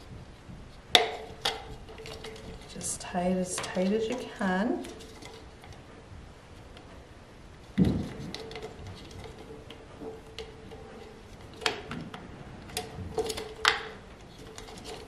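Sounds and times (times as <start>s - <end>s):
plastic clicks and crinkles: 0.4s - 5.9s, 7.6s - 15.0s.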